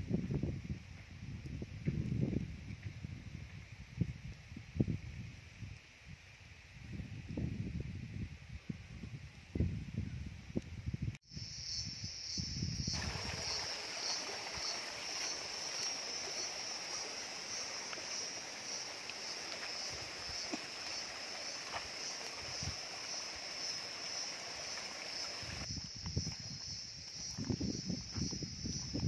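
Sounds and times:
high-pitched insect drone: 11.3s - 29.0s
stream rushing over rocks: 13.0s - 25.7s.

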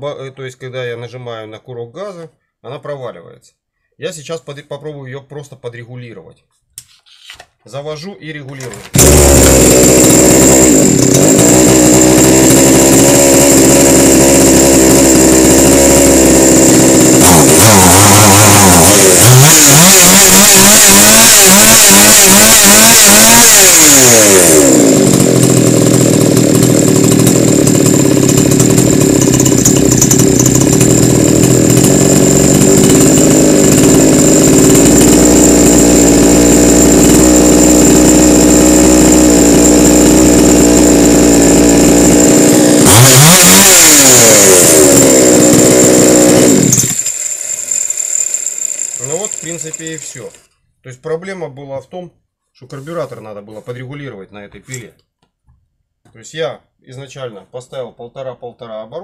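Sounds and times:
chainsaw engine revving and idling: 8.6s - 50.5s.

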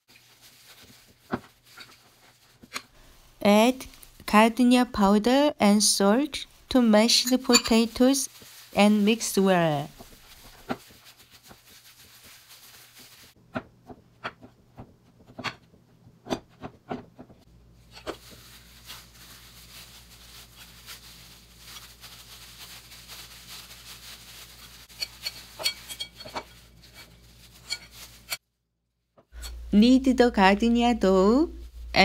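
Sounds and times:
hands kneading mashed potato: 0.1s - 2.8s, 7.6s - 28.4s
spoon scraping bowl: 7.1s - 8.0s, 24.9s - 28.4s.

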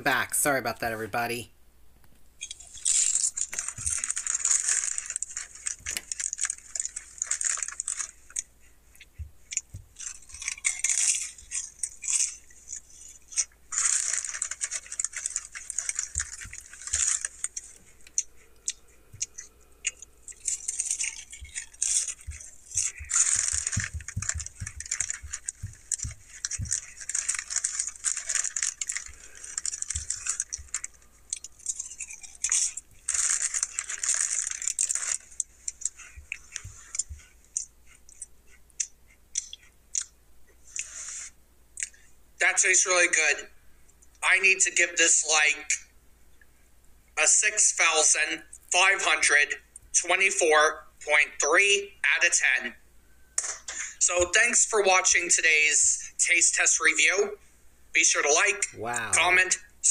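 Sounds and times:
chip bag crinkling: 2.4s - 8.5s, 9.5s - 37.7s.

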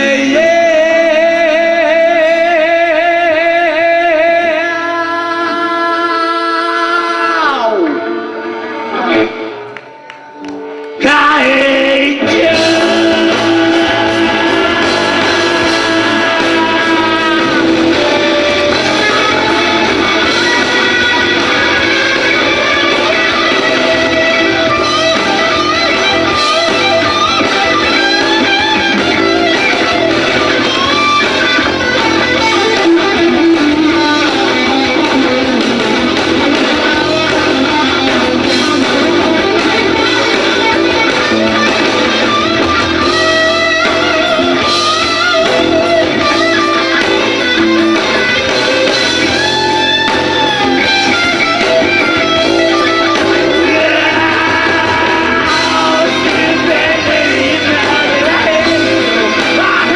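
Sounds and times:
electric guitar bending notes: 0.0s - 59.9s
rock band playing: 0.0s - 59.9s.

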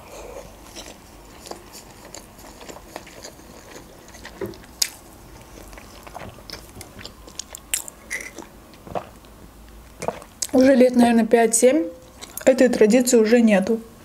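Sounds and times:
person chewing: 0.0s - 10.6s, 12.0s - 12.5s
wet mouth clicks: 5.6s - 10.6s.

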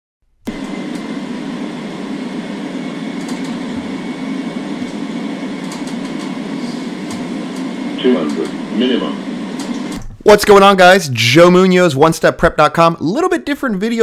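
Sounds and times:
engine and airflow rumble: 0.5s - 10.2s.

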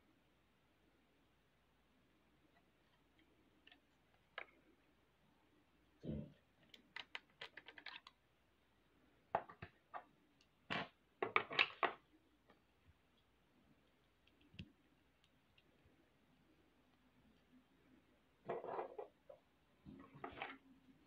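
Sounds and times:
plastic bricks clicking and rattling: 6.6s - 8.2s.

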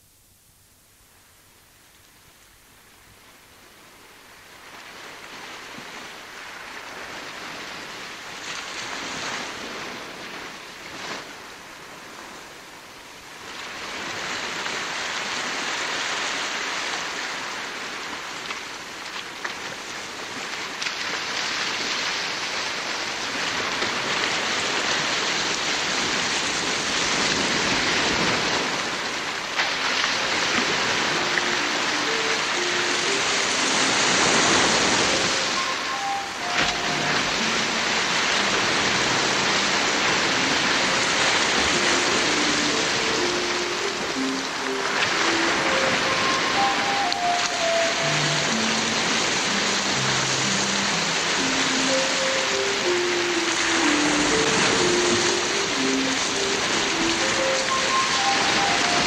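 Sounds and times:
steady rushing noise: 25.6s - 59.0s.

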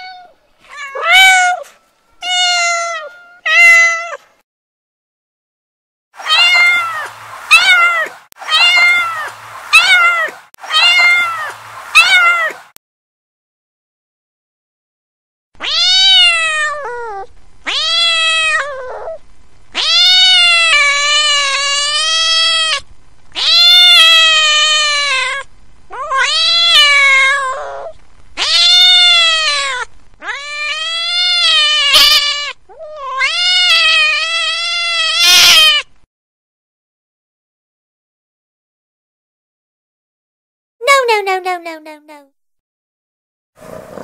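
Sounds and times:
kitten meowing: 0.0s - 1.6s, 6.2s - 12.6s, 15.6s - 19.2s, 19.8s - 22.8s, 23.4s - 35.9s.

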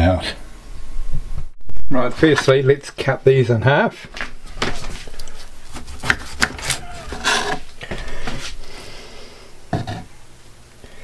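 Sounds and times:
knife slicing scrapes: 4.7s - 7.7s.

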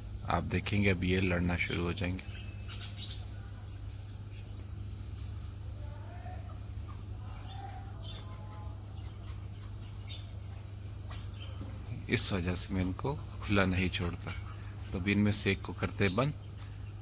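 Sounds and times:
high hiss: 0.0s - 17.0s
partridge calls: 1.0s - 5.4s, 6.4s - 17.0s.

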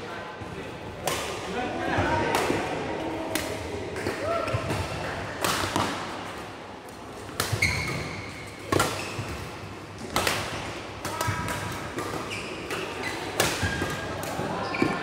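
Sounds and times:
racket hitting shuttlecock: 3.3s - 6.4s, 7.2s - 15.0s
shoes squeaking on court: 7.5s - 9.6s, 12.1s - 15.0s.

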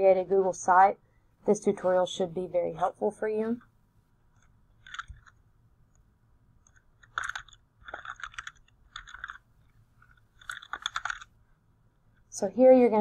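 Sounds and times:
typing on keyboard: 10.4s - 11.3s.

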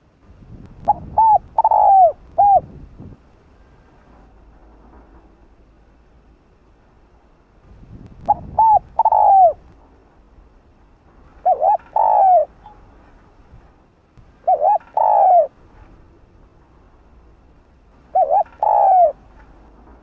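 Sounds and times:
dove cooing: 0.9s - 2.7s, 8.3s - 9.6s, 11.4s - 12.8s, 14.4s - 15.6s, 18.0s - 19.3s.

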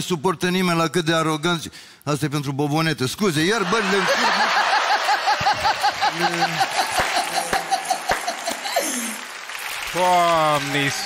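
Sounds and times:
audience laughing: 3.5s - 9.4s.

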